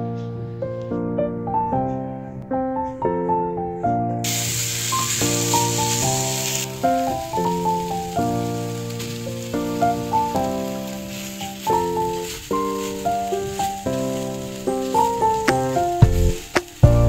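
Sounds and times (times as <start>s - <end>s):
food sizzling in frying pan: 4.2s - 17.0s
keyboard music: 4.3s - 17.0s.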